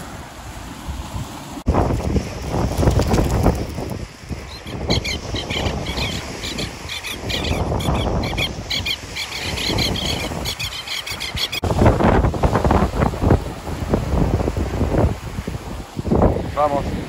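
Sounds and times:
waves on the shore: 0.0s - 17.0s
wind: 0.0s - 17.0s
birds calling shrilly: 4.4s - 11.6s.

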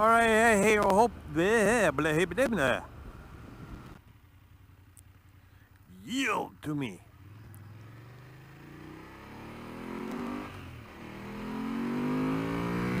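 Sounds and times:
motorcycle engine accelerating: 7.1s - 13.0s.

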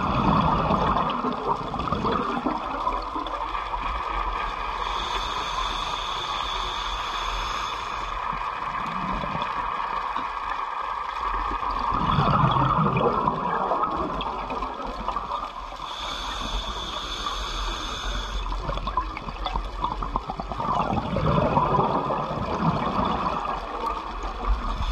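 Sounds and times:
gurgling exhaled bubbles: 0.0s - 5.1s, 8.3s - 10.4s, 11.4s - 16.5s, 18.4s - 24.9s
diver breathing through regulator: 4.8s - 8.3s, 15.8s - 18.6s.

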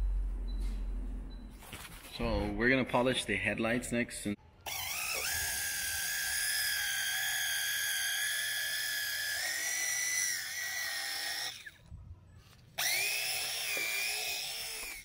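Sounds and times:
cordless drill motor whine: 4.6s - 11.9s, 12.8s - 15.0s.

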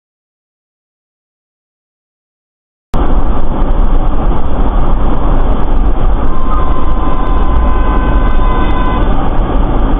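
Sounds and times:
road and vehicle rumble: 3.0s - 9.9s
steady high tone: 5.3s - 9.9s
faint tones: 6.2s - 9.4s.

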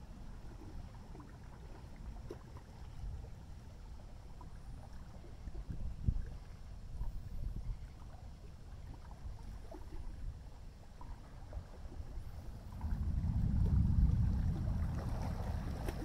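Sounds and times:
distant thunder rumbling: 12.6s - 16.0s.

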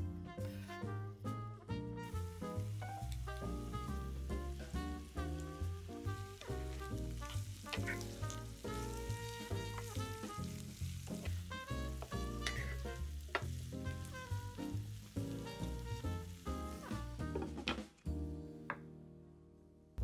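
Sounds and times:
background music with walking bass: 0.0s - 18.9s
food sizzling in oil: 2.0s - 17.6s.

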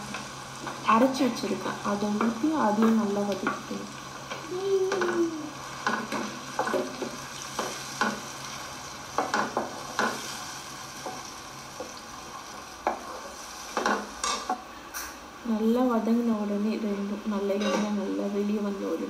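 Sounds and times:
food sizzling in oil: 0.0s - 19.0s
spatula scraping and knocking pan: 5.8s - 8.3s, 9.1s - 10.4s, 12.8s - 14.6s.

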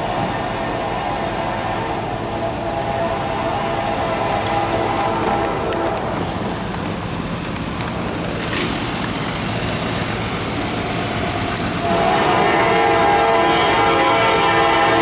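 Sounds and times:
locomotive air horn: 0.0s - 6.4s, 11.8s - 15.0s
diesel freight train rumbling: 0.0s - 15.0s.

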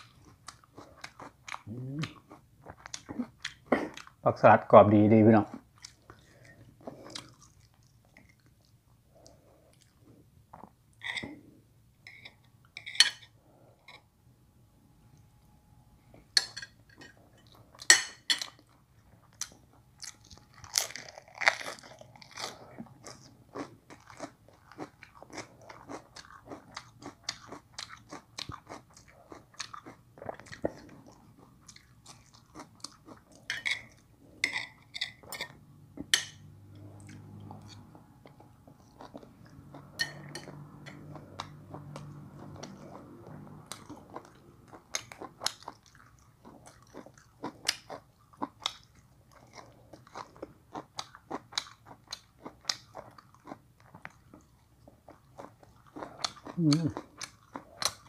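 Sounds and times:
person crunching lettuce: 20.0s - 30.6s.

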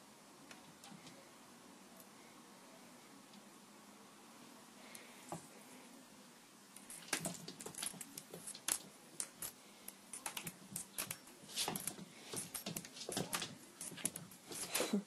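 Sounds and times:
cat claws clicking on floor: 6.8s - 14.9s.

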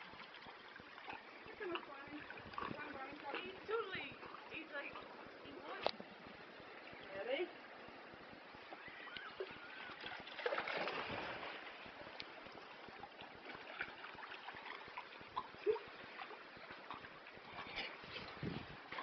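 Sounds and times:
sea water splashing among rocks: 9.8s - 15.4s.

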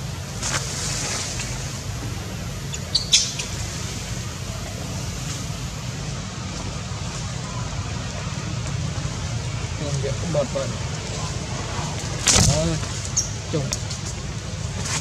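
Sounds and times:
low wind rumble on microphone: 0.0s - 15.0s
sharp high-pitched chirp: 2.7s - 3.5s.

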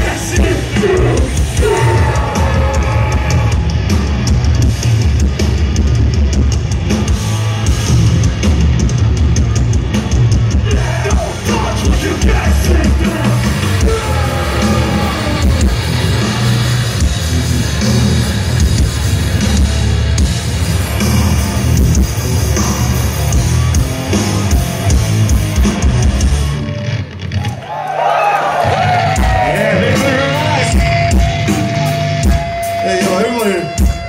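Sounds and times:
rapid pounding drums: 0.0s - 26.6s, 28.7s - 34.0s
distorted guitars: 0.0s - 27.6s, 28.5s - 34.0s
bass guitar: 0.0s - 34.0s.

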